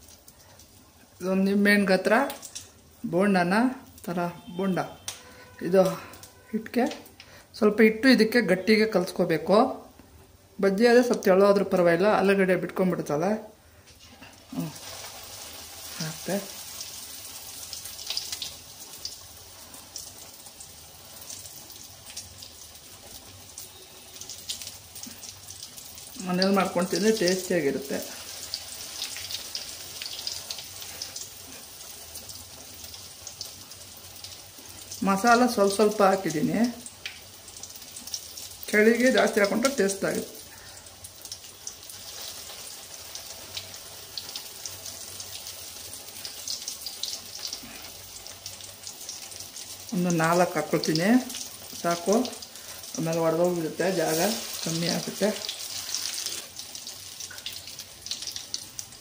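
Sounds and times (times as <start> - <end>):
deep-frying sizzle with pops: 0.0 - 59.0.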